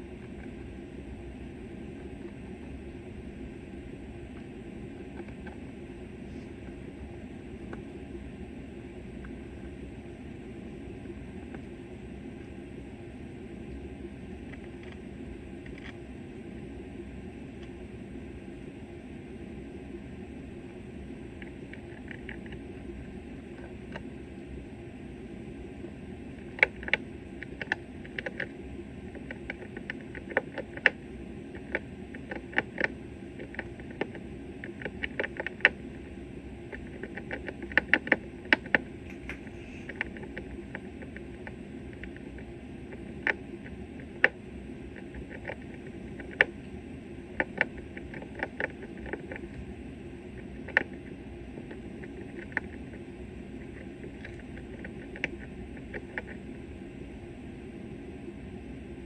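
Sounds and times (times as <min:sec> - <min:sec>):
steady low background noise: 0:00.0 - 0:59.0.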